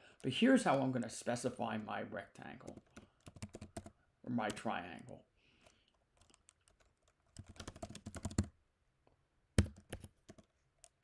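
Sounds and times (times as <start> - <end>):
computer keyboard typing: 2.6 - 4.7, 6.1 - 8.6, 9.6 - 11.0.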